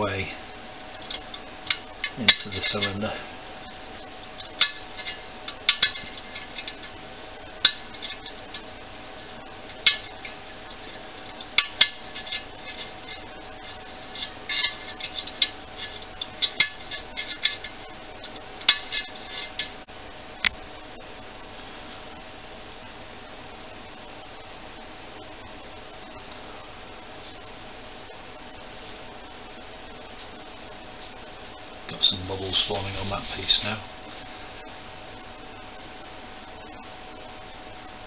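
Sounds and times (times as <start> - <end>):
paperclip scraping inside metal boiler: 4.4 - 7.0, 7.6 - 19.8.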